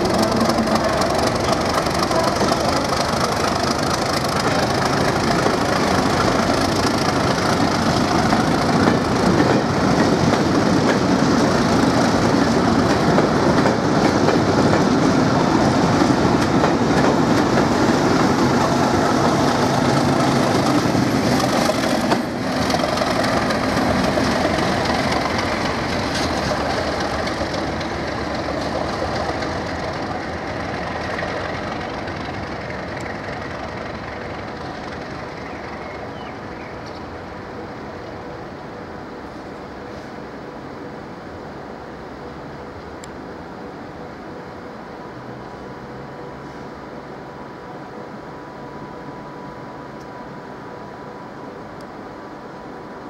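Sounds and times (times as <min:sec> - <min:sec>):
diesel locomotive engine: 0:00.0 - 0:53.0
train wheels rolling on track: 0:00.0 - 0:53.0.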